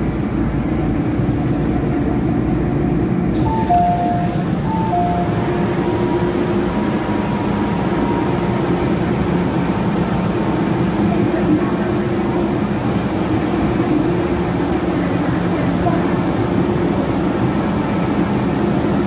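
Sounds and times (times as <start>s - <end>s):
train equipment hum and rumble: 0.0s - 19.0s.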